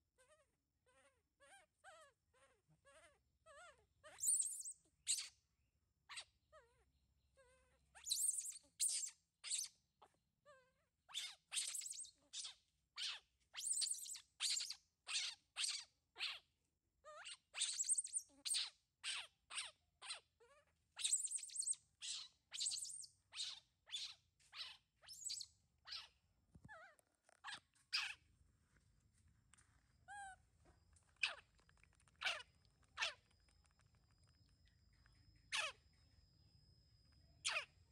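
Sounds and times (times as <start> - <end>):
baby monkey squealing: 0.2 - 5.4, 6.1 - 6.8, 7.4 - 16.5, 17.1 - 28.2, 31.2 - 31.5, 32.2 - 33.3, 35.4 - 35.8, 37.4 - 37.8.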